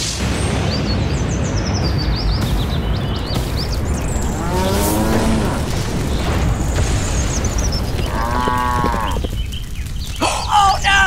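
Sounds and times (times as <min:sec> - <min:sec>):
cow mooing: 0:04.3 - 0:05.8.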